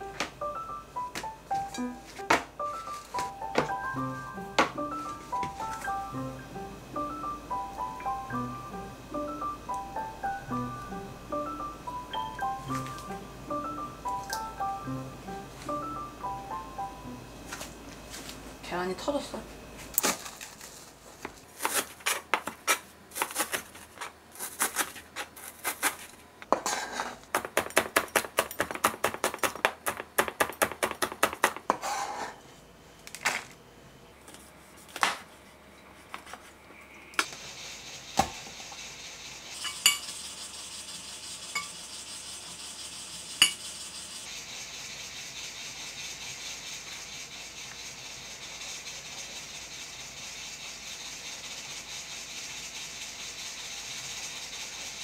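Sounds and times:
steady hiss: 0.0 - 20.0, 33.7 - 55.0
utensils clinking against dishes: 39.6 - 40.2, 41.5 - 41.8, 43.4 - 43.7.

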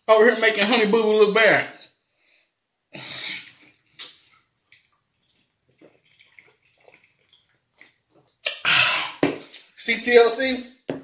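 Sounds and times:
faint gulps: 3.0 - 9.7
wet mouth clicks: 3.9 - 4.2, 7.8 - 8.7
person slurping a drink: 5.3 - 9.2.

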